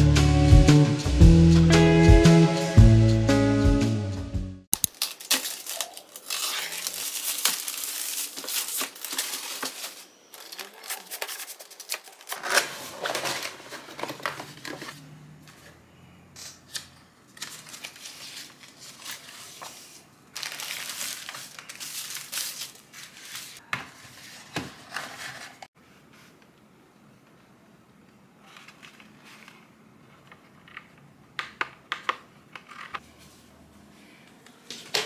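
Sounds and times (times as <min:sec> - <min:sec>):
paper and tissue rustling: 0:04.8 - 0:15.0, 0:17.4 - 0:26.4.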